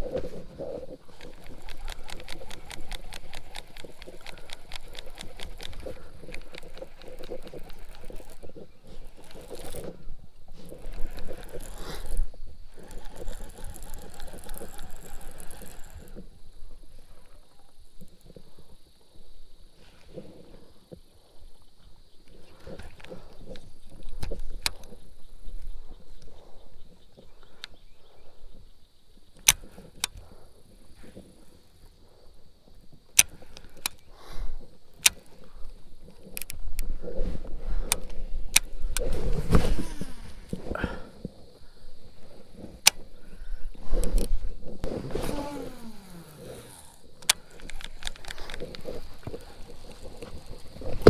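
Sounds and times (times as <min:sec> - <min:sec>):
fishing reel winding line: 0:00.9 - 0:17.4, 0:45.2 - 0:51.0.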